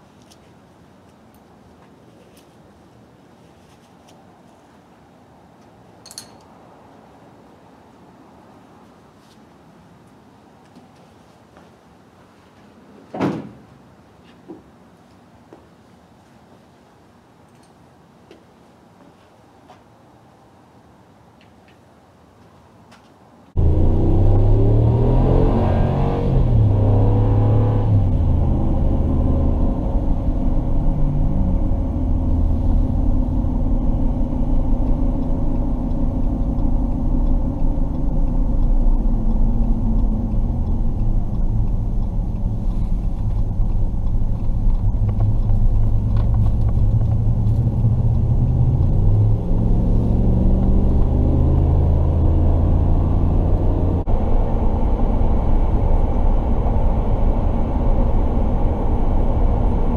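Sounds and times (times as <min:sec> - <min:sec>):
road noise: 0:00.0 - 0:59.9
truck engine droning: 0:23.6 - 0:59.9.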